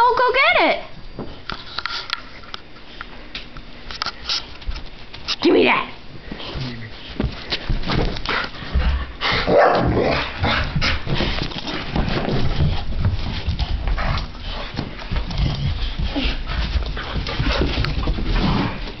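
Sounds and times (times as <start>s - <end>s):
dogs scuffling over toy: 6.2s - 19.0s.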